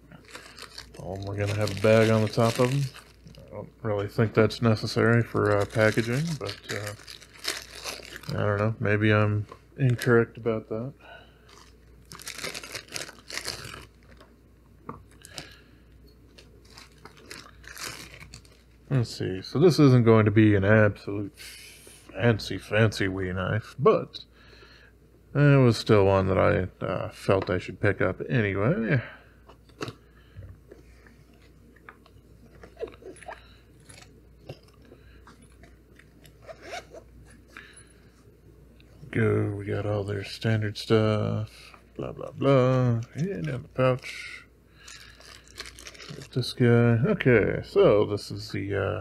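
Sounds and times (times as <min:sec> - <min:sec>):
packaging crinkling and rustling: 0:00.1 - 0:08.8, 0:11.5 - 0:14.3, 0:16.3 - 0:18.8, 0:44.8 - 0:46.6.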